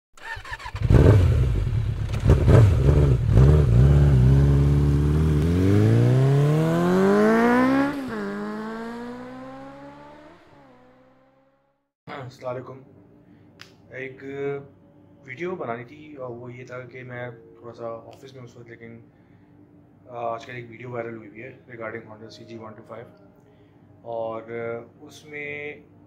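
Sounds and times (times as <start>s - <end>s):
engine revving: 0.2s - 11.8s.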